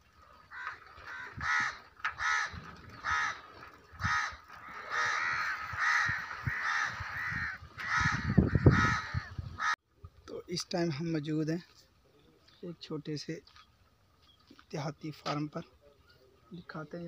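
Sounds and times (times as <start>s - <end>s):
harsh crow-like caws: 0.5s - 9.8s.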